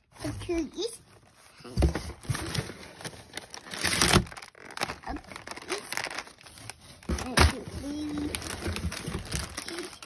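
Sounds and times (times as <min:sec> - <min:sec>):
cardboard boxes rustling and knocking: 0:01.6 - 0:04.4, 0:06.8 - 0:09.7
plastic wrapper crinkling: 0:02.2 - 0:10.0.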